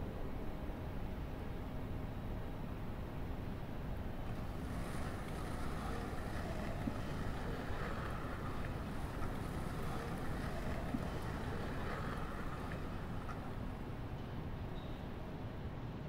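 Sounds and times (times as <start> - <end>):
low outdoor rumble: 4.0 - 15.3
wind buffeting microphone: 4.2 - 14.1.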